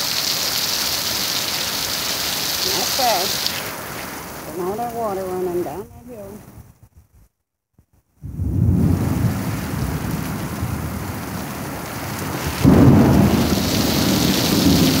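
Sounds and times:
heavy rain pouring: 0:00.0 - 0:06.6, 0:08.2 - 0:15.0
thunder rumbling: 0:08.2 - 0:15.0.

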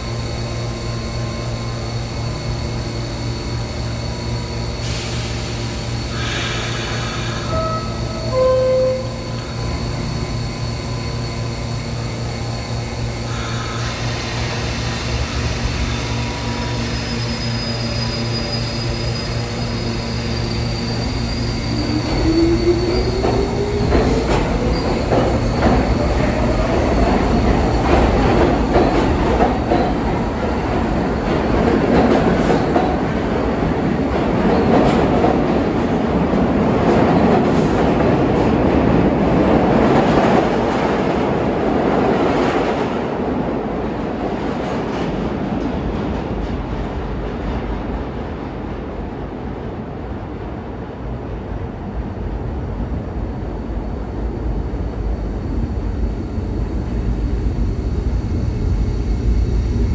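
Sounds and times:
train motor whine: 0:00.0 - 0:31.0
subway train humming: 0:00.0 - 0:59.9
train wheels rumbling on rails: 0:00.0 - 0:59.9.

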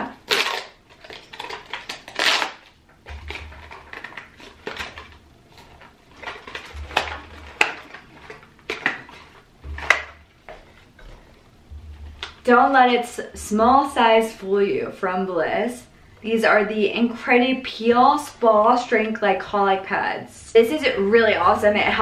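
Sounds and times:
cardboard tearing and rustling: 0:00.2 - 0:10.1.

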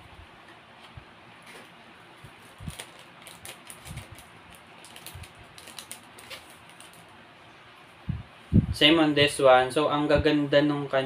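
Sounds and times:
tissue paper crackling and rustling: 0:02.3 - 0:07.1.

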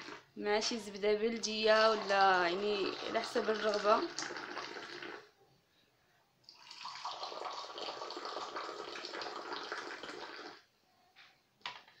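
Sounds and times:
tea pouring into a glass: 0:01.8 - 0:05.3, 0:06.5 - 0:10.6.

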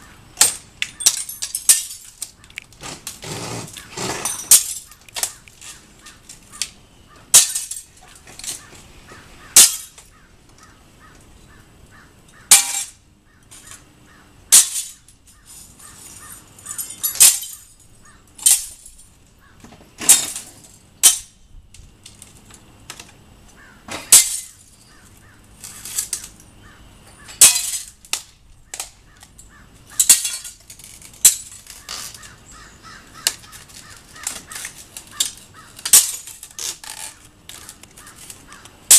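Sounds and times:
window glass and frame breaking: 0:00.4 - 0:06.4, 0:07.3 - 0:08.6, 0:09.6 - 0:10.1, 0:12.5 - 0:12.9, 0:14.5 - 0:15.2, 0:16.0 - 0:17.8, 0:18.4 - 0:19.0, 0:20.0 - 0:21.3, 0:23.9 - 0:24.8, 0:27.3 - 0:28.9, 0:30.0 - 0:32.3, 0:33.2 - 0:38.9.

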